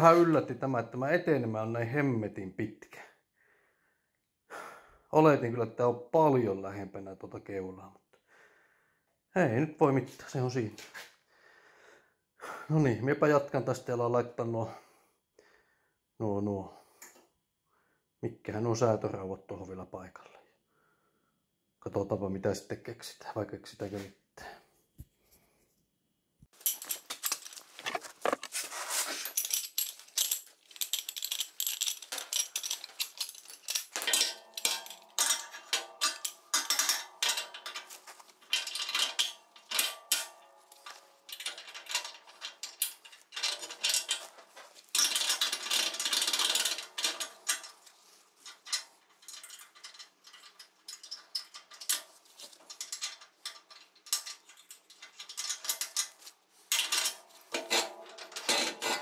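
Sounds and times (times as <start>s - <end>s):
metallic clinking and clattering: 26.5s - 59.0s.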